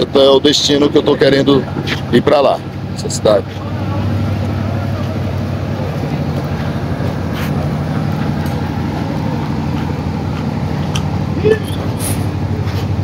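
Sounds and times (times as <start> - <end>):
diesel engine humming: 0.0 - 13.0.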